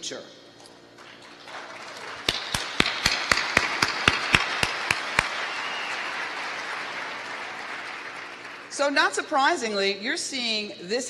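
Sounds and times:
loud hand claps close by: 0:01.0 - 0:08.8
audience applauding: 0:01.0 - 0:08.9.

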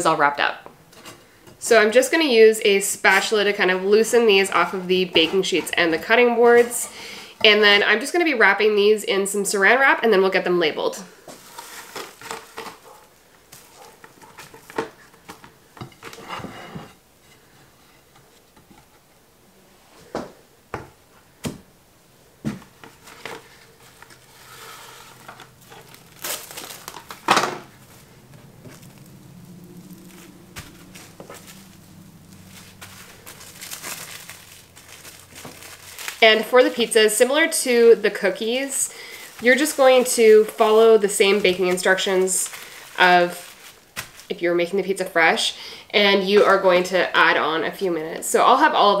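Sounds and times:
cling wrap crinkling: 0:11.1 - 0:16.3, 0:22.6 - 0:45.4.

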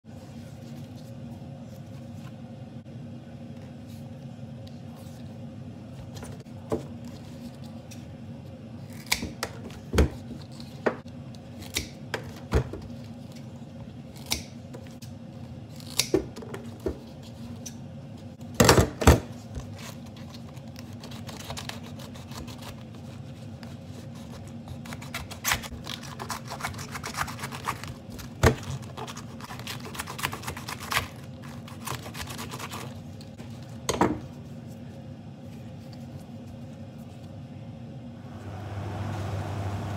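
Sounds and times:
steady low hum: 0:00.0 - 0:39.9
knife cutting crackling: 0:24.1 - 0:33.3.

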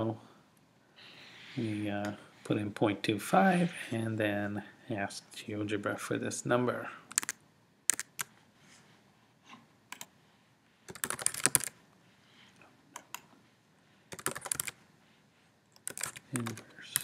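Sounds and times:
keyboard keystrokes: 0:10.9 - 0:11.7, 0:14.1 - 0:14.7, 0:15.8 - 0:17.0.

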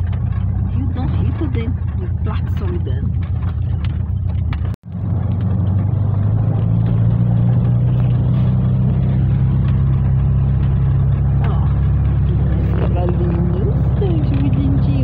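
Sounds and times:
van engine and road drone: 0:00.0 - 0:15.0.

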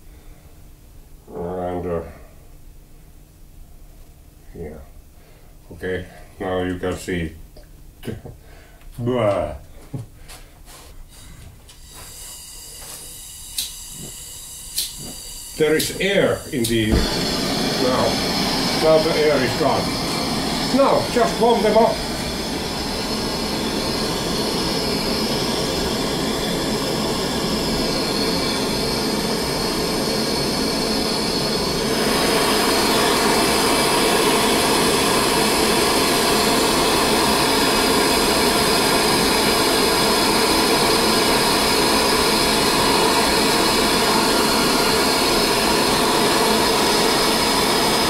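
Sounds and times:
gas torch hissing: 0:10.7 - 0:48.0.

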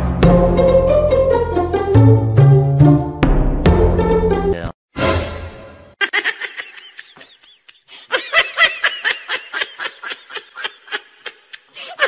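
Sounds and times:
person giggling: 0:06.0 - 0:12.0.

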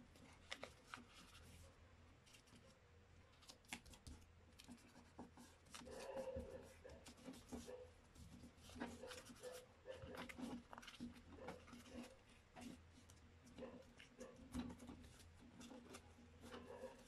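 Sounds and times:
paper crinkles and taps: 0:00.2 - 0:01.5.

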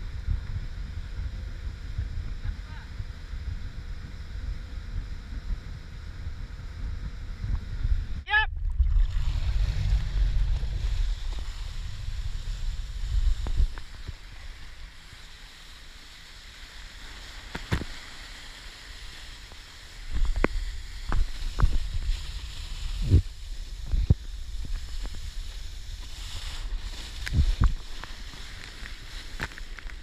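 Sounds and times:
wind buffeting microphone: 0:00.0 - 0:15.6
water rushing and spraying: 0:08.3 - 0:30.0.

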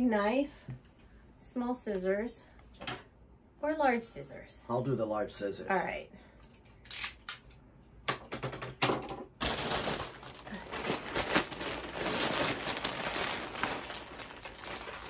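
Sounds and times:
plastic bag crinkling: 0:09.4 - 0:15.0.

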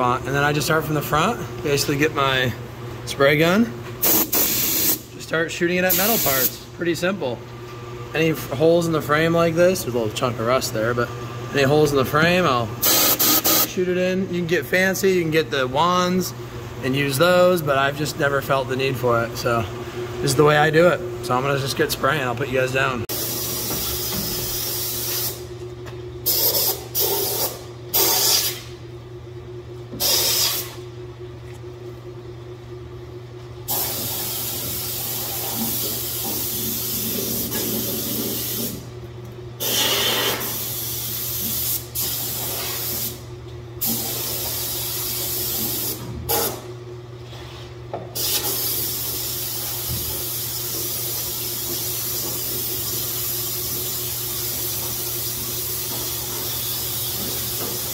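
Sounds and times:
steady low hum: 0:00.0 - 0:57.9
spray gun hissing: 0:12.8 - 0:13.7, 0:33.7 - 0:37.0, 0:50.8 - 0:57.9.

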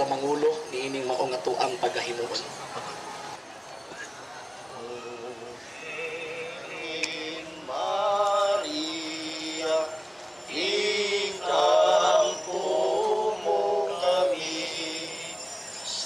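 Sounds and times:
men singing a hymn in unison: 0:04.8 - 0:16.0.

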